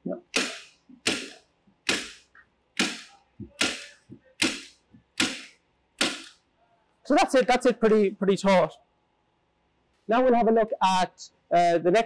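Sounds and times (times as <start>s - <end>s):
staple gun firing: 0.3s - 6.4s.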